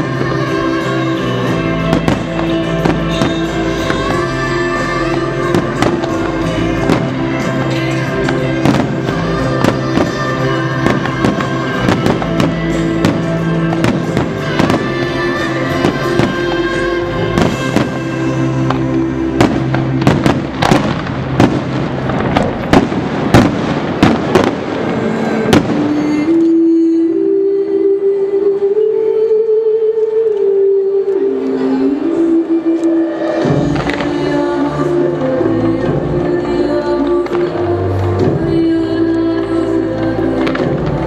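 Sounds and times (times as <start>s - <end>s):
fireworks banging and crackling: 0.0s - 26.5s, 33.3s - 38.6s, 39.4s - 41.0s
music with long held notes: 0.0s - 41.0s.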